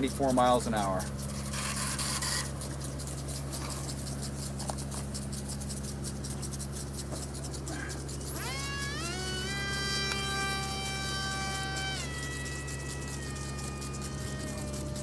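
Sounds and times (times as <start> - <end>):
crackling rustle: 0.0 - 15.0
electric motor whine: 0.0 - 15.0.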